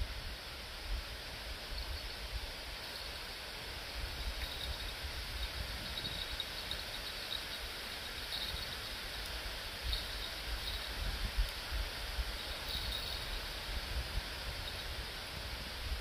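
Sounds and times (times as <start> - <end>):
wind buffeting microphone: 3.9 - 7.2
faint high chirps: 4.4 - 9.0.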